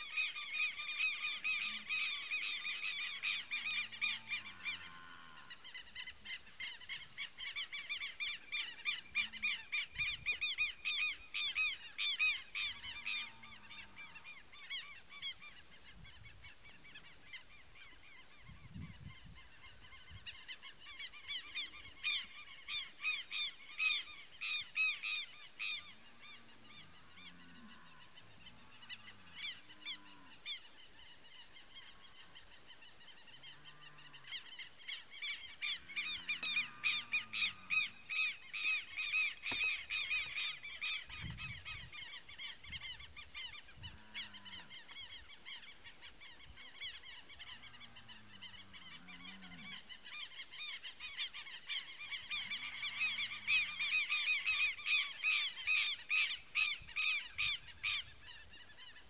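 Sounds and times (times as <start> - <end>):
lapwings strident calls: 34.8 - 43.7, 50.1 - 59.0.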